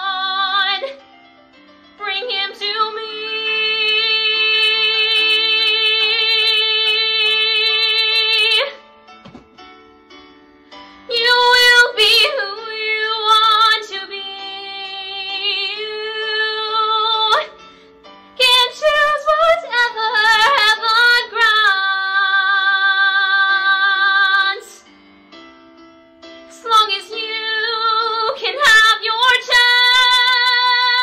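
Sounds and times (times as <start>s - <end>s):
woman singing with vibrato: 2.0s - 8.8s, 26.5s - 31.0s.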